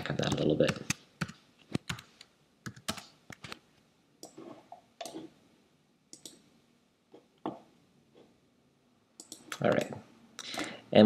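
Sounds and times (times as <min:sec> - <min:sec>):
mouse and keyboard clicks: 0:06.2 - 0:06.4, 0:09.2 - 0:10.0.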